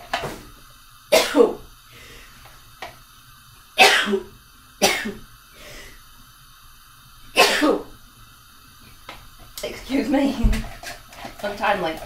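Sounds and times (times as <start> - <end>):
woman coughing: 1.1 - 1.6, 3.8 - 5.2, 7.4 - 7.9.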